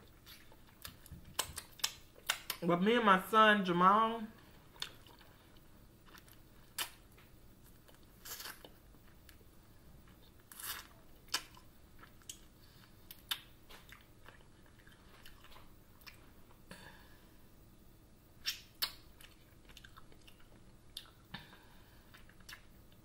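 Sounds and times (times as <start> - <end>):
person chewing crunchy food: 4.6 - 16.6, 18.4 - 23.0.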